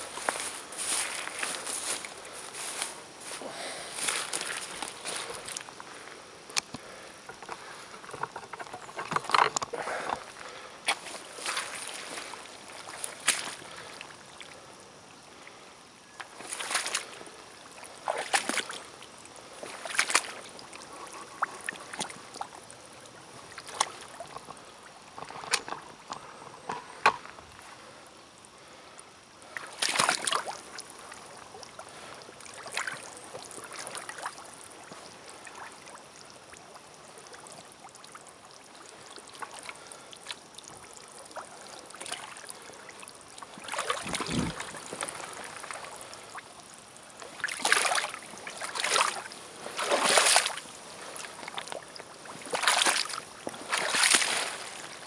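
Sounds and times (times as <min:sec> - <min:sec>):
boots splashing through mud: 0:10.9 - 0:13.7, 0:16.3 - 0:17.2, 0:18.0 - 0:18.8, 0:19.6 - 0:20.4, 0:29.6 - 0:30.5, 0:43.7 - 0:45.4, 0:47.4 - 0:51.8, 0:52.4 - 0:55.0.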